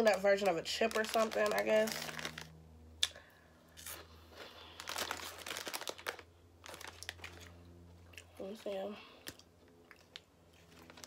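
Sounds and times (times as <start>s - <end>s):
plastic bag crinkling: 0.0s - 2.6s, 3.8s - 7.6s, 10.0s - 11.0s
crunching snack chip: 0.4s - 3.2s, 3.8s - 7.5s.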